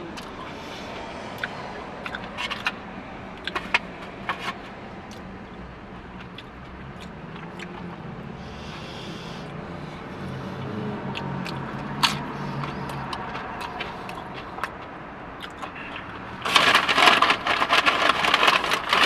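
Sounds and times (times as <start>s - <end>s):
mouth smacks and crunches: 5.1s - 5.3s, 6.0s - 9.6s, 10.6s - 19.0s.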